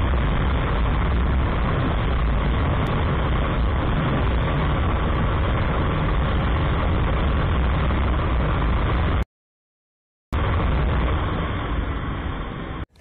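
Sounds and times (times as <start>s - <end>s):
motorcycle riding noise: 0.0s - 9.2s
wind rushing: 0.0s - 9.2s.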